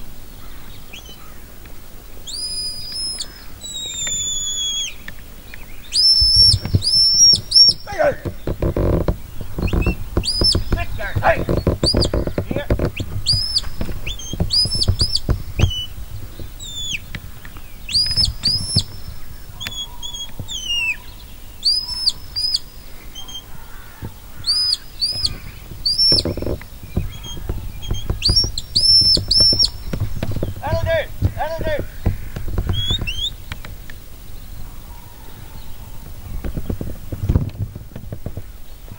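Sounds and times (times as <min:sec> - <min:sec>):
shepherd's whistle commands: 0:02.3 - 0:05.0, 0:05.9 - 0:08.2, 0:27.9 - 0:29.8.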